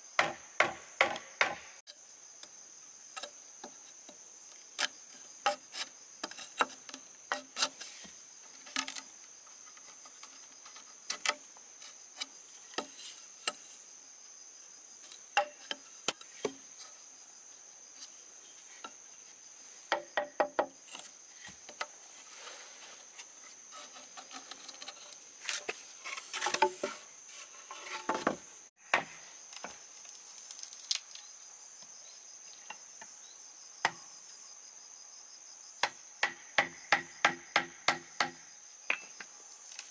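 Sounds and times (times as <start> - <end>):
insects droning: 0.0 - 39.9
sharp knocks and taps: 19.9 - 20.7.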